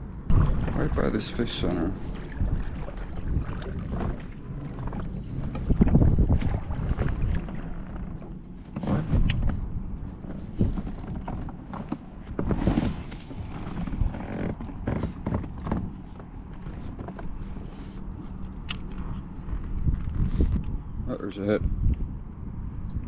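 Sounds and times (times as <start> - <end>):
wind rumble on microphone: 0.0 - 23.0
knocks and thumps on kayak: 0.3 - 1.0, 2.0 - 17.4.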